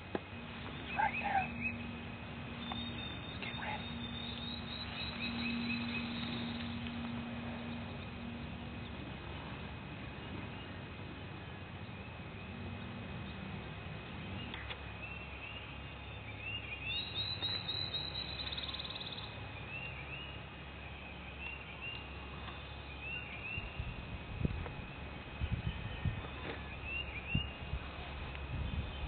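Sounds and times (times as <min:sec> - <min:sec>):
low steady rumble: 0:00.0 - 0:29.0
small birds chirping: 0:00.0 - 0:29.0
bird trill: 0:00.7 - 0:06.8, 0:14.4 - 0:20.4.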